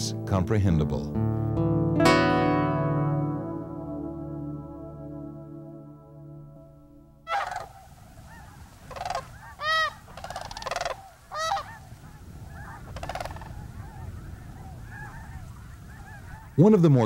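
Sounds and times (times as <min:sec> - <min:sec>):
sandhill cranes calling: 0:07.3 - 0:16.6
distant flock of cranes calling: 0:07.3 - 0:17.0.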